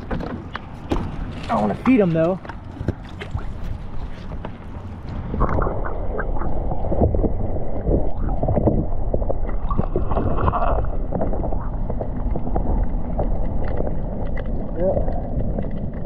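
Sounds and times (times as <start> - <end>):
muffled underwater rush: 0.0 - 16.0
small clicks and crackles: 8.5 - 16.0.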